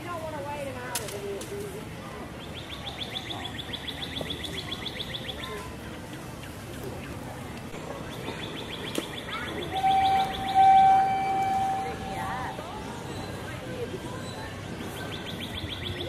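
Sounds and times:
songbird trilling: 8.4s - 12.3s
loud steady tone: 9.6s - 12.8s.

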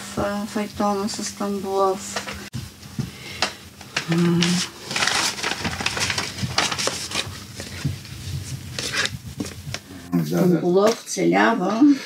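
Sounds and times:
paper rustling: 3.8s - 9.8s.

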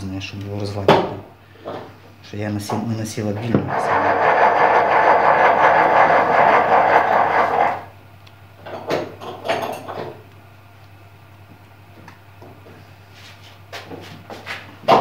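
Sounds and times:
loud steady noise: 3.5s - 8.0s.

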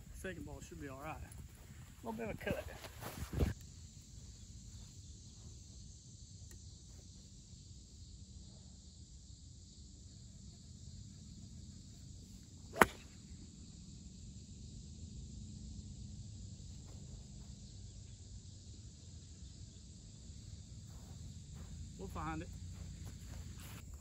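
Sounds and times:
insects chirping: 0.0s - 24.0s
golf club striking ball: 12.7s - 13.1s.

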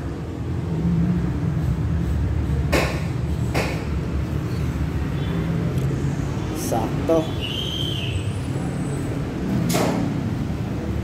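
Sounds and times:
sharp knocks: 2.7s - 4.0s, 9.7s - 10.1s.

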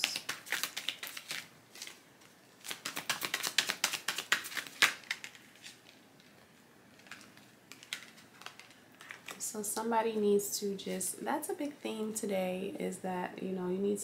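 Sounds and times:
cards being shuffled: 0.0s - 9.4s.

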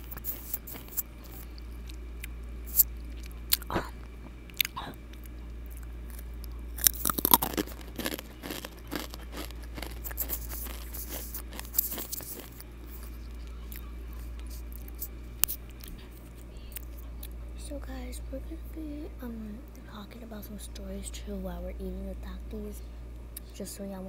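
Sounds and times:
chips crunching: 0.0s - 17.3s.

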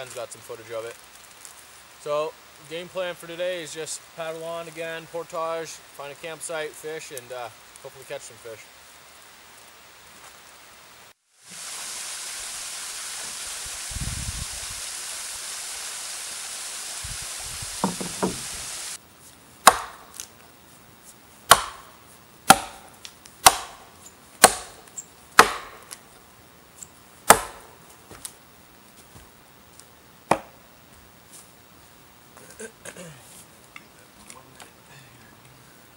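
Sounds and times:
steady rushing hiss: 0.0s - 35.9s
hatchet chopping firewood: 17.8s - 18.5s, 19.6s - 20.3s, 21.5s - 26.0s, 27.3s - 28.3s, 30.3s - 30.6s.

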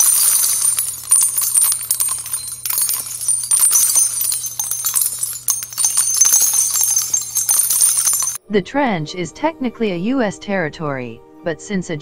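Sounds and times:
jingling bells: 0.0s - 8.4s.

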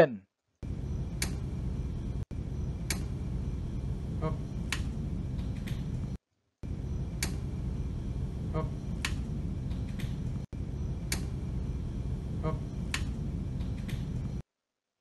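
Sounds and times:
transformer humming: 0.6s - 14.4s
sharp clicks: 7.2s - 7.4s.

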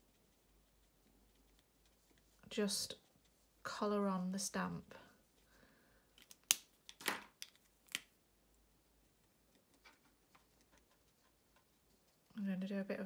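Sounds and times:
scratchy rub: 0.0s - 4.5s, 9.1s - 12.5s
plastic pen cap clicks: 6.2s - 8.1s.

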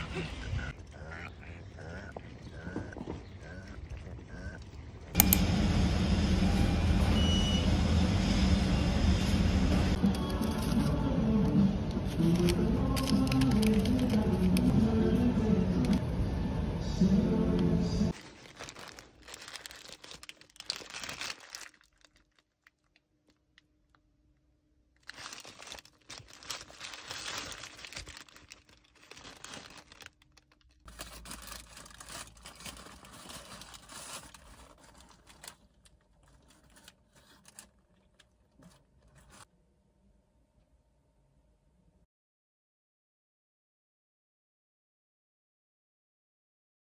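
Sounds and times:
paper wrapper crinkling: 10.1s - 11.0s, 12.0s - 14.7s, 18.1s - 24.0s, 25.0s - 39.5s.

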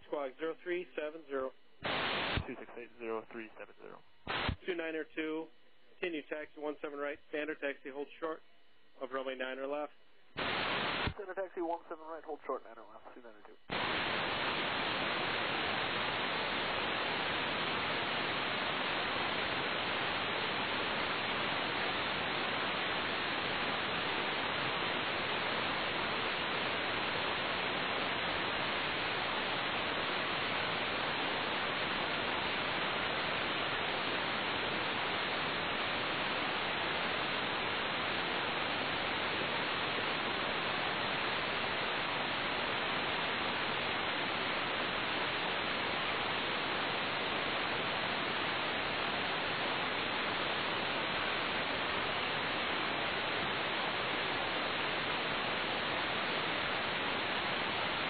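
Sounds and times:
radio static hiss: 0.0s - 58.0s.

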